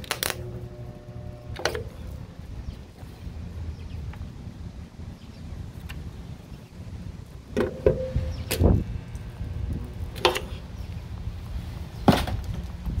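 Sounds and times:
sharp metallic knocks: 0:07.6 - 0:08.8.

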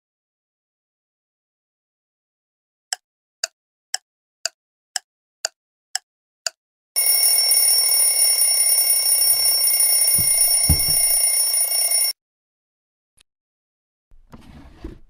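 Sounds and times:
clock ticking: 0:02.9 - 0:11.8
alarm clock ringing: 0:07.0 - 0:12.2.

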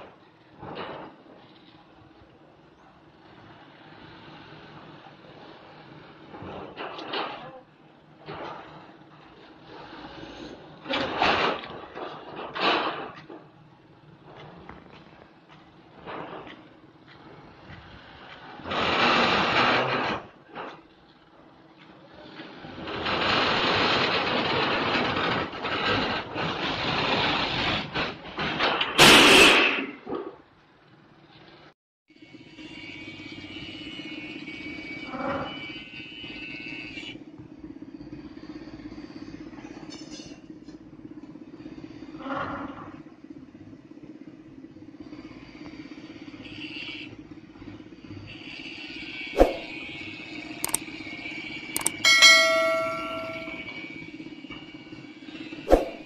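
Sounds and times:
diesel truck engine running: 0:00.0 - 0:28.4, 0:36.0 - 0:55.6
loud metallic clang: 0:29.0 - 0:30.0, 0:51.8 - 0:53.8, 0:55.7 - 0:56.0
metallic crash of steel: 0:29.0 - 0:30.0, 0:51.9 - 0:53.8
steel load scraping on bed: 0:49.4 - 0:49.9, 0:55.7 - 0:56.0
steel beams scraping and grinding: 0:51.8 - 0:54.0, 0:55.7 - 0:56.0.

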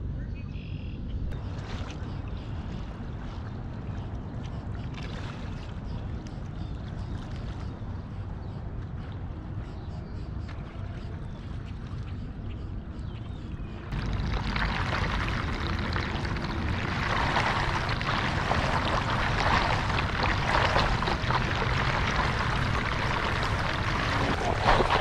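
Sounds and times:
water gurgling and splashing: 0:13.9 - 0:25.0.

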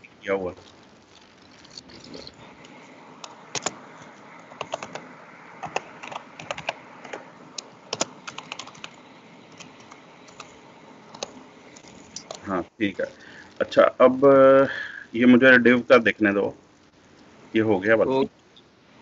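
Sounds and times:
computer keyboard typing: 0:03.2 - 0:07.2, 0:07.9 - 0:12.4.

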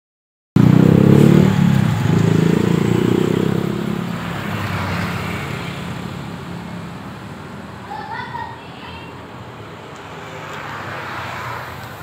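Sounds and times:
vehicle engine running: 0:00.6 - 0:07.7.

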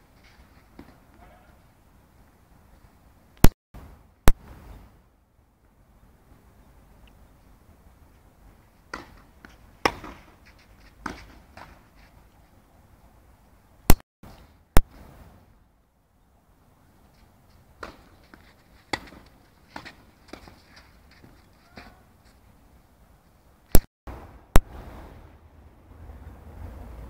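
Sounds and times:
tennis balls struck by rackets: 0:08.8 - 0:11.9, 0:17.8 - 0:22.0
tennis balls bouncing on clay: 0:08.8 - 0:12.0, 0:17.8 - 0:22.0.

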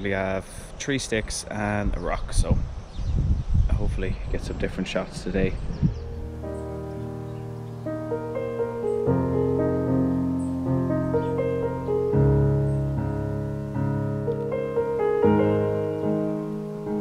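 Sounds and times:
slow piano chords: 0:05.9 - 0:17.0.

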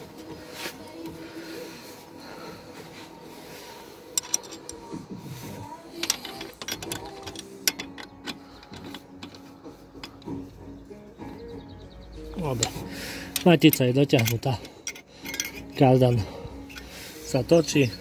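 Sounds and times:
wrench clinking on metal: 0:04.1 - 0:05.1, 0:05.9 - 0:10.4, 0:12.5 - 0:17.0.

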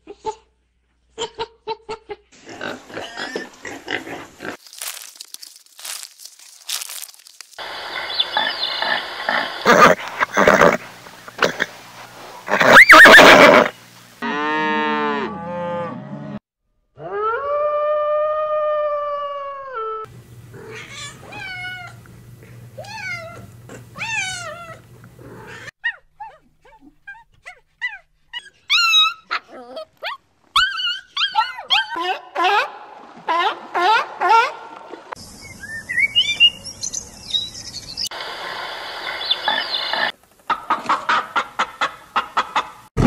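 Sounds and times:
horse whinnying: 0:09.6 - 0:10.8, 0:12.5 - 0:13.7
long held animal call: 0:12.5 - 0:13.7
small dog yipping: 0:12.6 - 0:13.4, 0:25.5 - 0:32.2.

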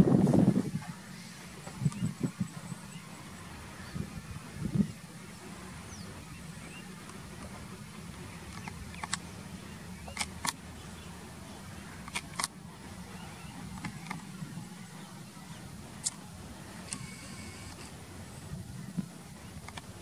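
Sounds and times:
distant jet engines rumbling: 0:00.0 - 0:20.0
sharp clicks near microphone: 0:08.5 - 0:09.3, 0:10.0 - 0:10.6, 0:12.0 - 0:12.6, 0:19.6 - 0:19.9.

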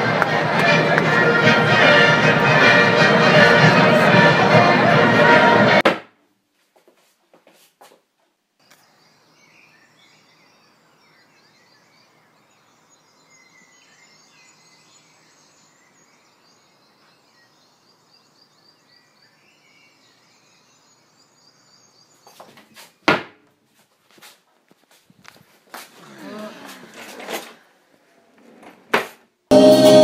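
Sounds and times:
small birds chirping: 0:08.6 - 0:23.0.

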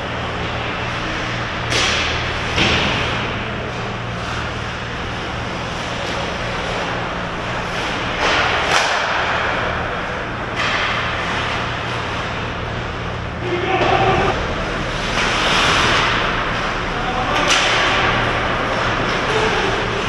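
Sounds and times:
steady low hum: 0:00.0 - 0:20.0
ice skates scraping ice: 0:14.8 - 0:16.7.

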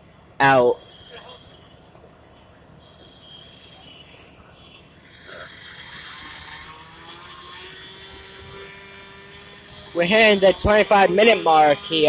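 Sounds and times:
gas-powered saw whining: 0:02.8 - 0:12.0.

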